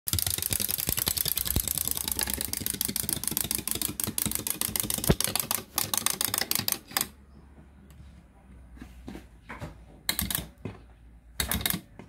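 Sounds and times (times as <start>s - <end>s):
clockwork toy clicking: 0.1s - 7.1s, 11.4s - 11.9s.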